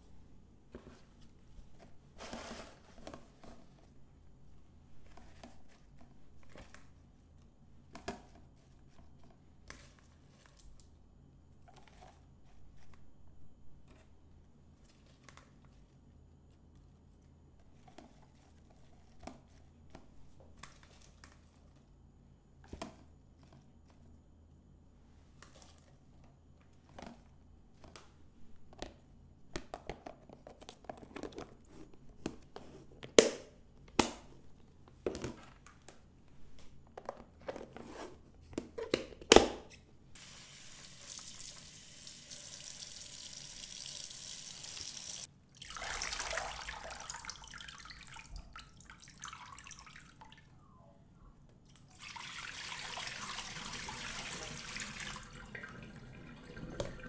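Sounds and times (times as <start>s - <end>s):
tap water running into sink: 40.2s - 50.2s, 51.9s - 57.0s.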